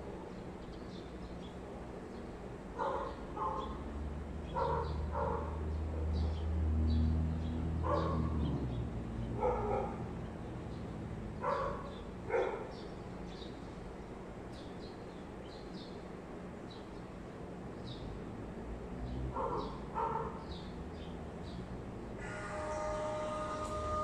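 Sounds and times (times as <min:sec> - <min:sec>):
dog barking: 0:02.8 - 0:03.8, 0:04.5 - 0:06.2, 0:07.8 - 0:08.4, 0:09.4 - 0:10.1, 0:11.4 - 0:12.8, 0:19.3 - 0:20.4.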